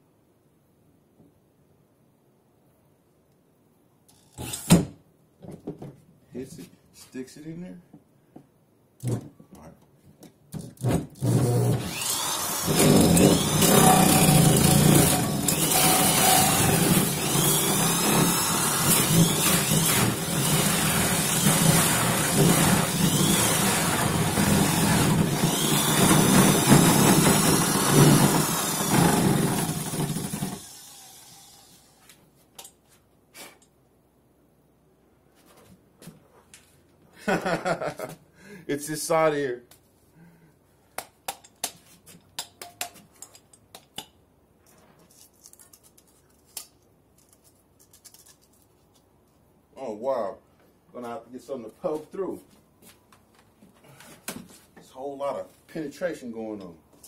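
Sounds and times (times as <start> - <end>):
electric drill cutting plastic: 11.2 - 32.0.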